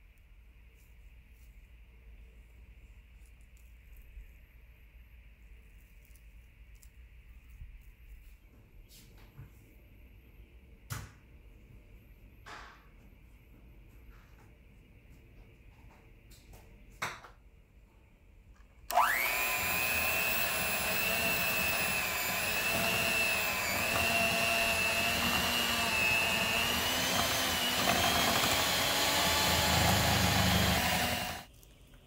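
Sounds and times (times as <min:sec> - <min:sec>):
electric hand mixer whine: 0:18.9 - 0:31.5.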